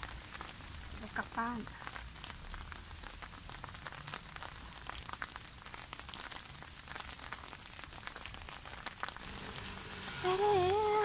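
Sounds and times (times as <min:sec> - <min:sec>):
rain hissing: 0:00.0 - 0:11.0.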